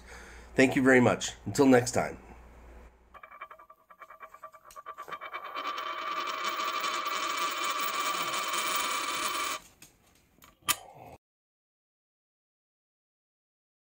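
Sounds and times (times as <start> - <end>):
coin spinning on wooden table: 3.2 - 9.7.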